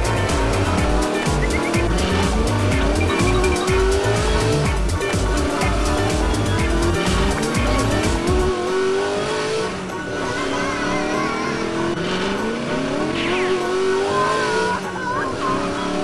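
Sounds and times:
beat-driven music: 0.0 - 8.6
electronic engine-revving effects: 0.0 - 16.0
electronic game tones: 1.0 - 2.0, 2.7 - 4.0.

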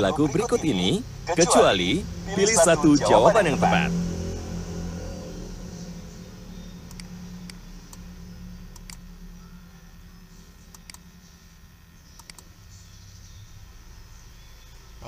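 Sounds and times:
low steady hum: 0.0 - 15.0
computer mouse clicking: 10.7 - 11.0, 12.2 - 12.5.

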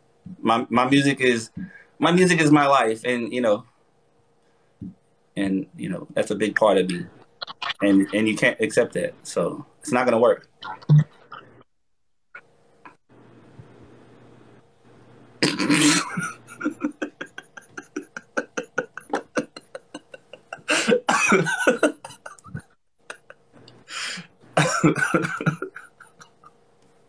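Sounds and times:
man coughing: 15.4 - 23.4, 24.6 - 26.3
man laughing hard: 15.4 - 23.4, 24.6 - 26.5.

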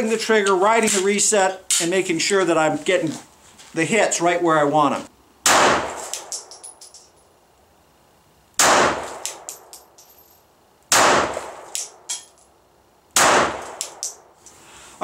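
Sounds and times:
pistol shots echoing: 5.4 - 6.5, 8.6 - 9.7, 10.9 - 12.0, 13.2 - 14.2.

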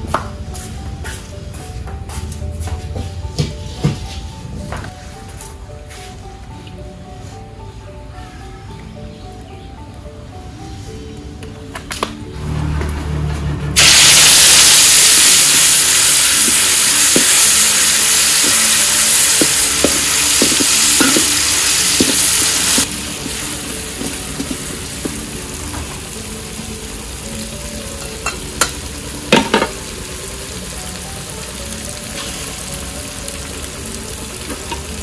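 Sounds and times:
chili paste sizzling in hot oil: 13.8 - 35.0.

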